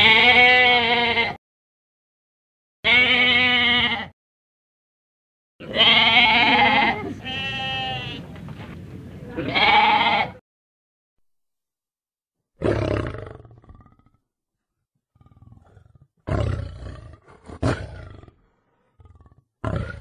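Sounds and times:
goat bleating: 0:00.0 - 0:01.4, 0:02.9 - 0:04.1, 0:05.6 - 0:08.3, 0:09.2 - 0:10.4.

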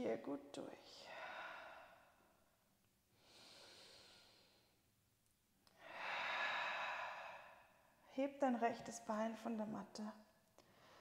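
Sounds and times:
woman breathing slowly: 0:01.0 - 0:04.9, 0:05.7 - 0:08.0, 0:10.6 - 0:11.0.

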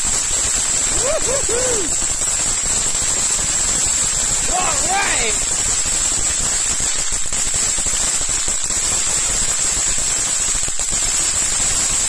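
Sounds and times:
firework fountain hissing: 0:00.0 - 0:12.0.

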